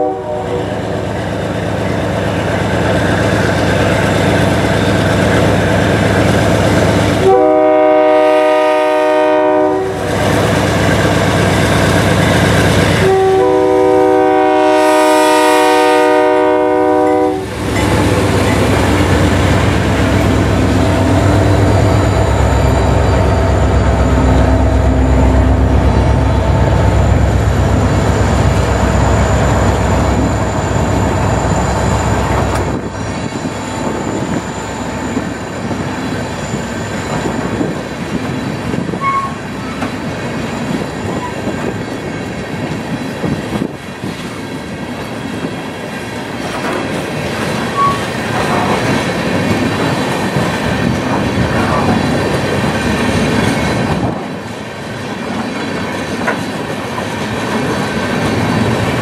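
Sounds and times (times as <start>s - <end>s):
locomotive air horn: 0.0s - 0.9s, 7.2s - 10.2s, 13.0s - 17.6s, 39.0s - 39.4s, 47.7s - 48.1s
diesel locomotive engines running: 0.0s - 59.0s
train wheels clicking over rail joints: 31.8s - 59.0s.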